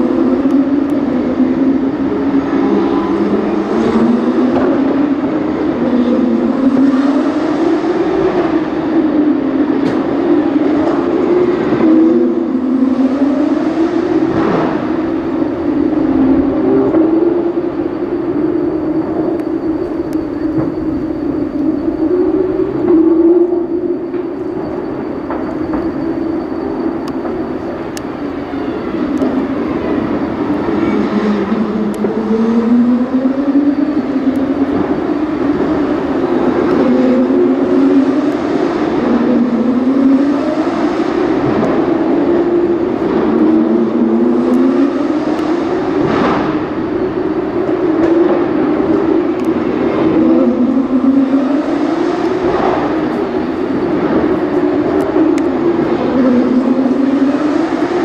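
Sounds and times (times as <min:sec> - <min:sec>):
racing car engines: 0:00.0 - 0:58.0.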